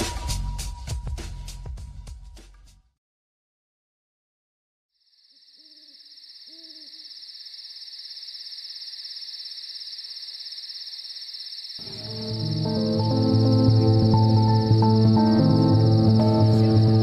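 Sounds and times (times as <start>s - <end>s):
crickets chirring: 5.0s - 17.0s
owl hoots: 5.4s - 10.6s.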